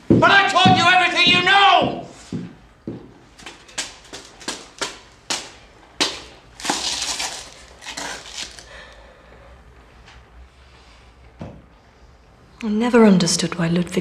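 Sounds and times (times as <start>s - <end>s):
footsteps on wooden stairs: 0.0s - 5.5s
footsteps scuffing: 0.0s - 8.6s.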